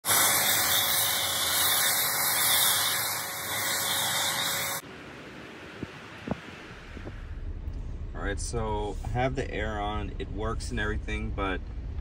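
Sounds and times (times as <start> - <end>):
pressure washer spray hissing: 0.0 - 4.8.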